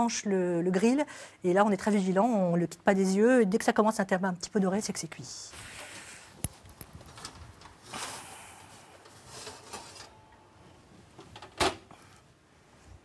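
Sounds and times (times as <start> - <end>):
baking tray scraping: 9.2 - 10.2.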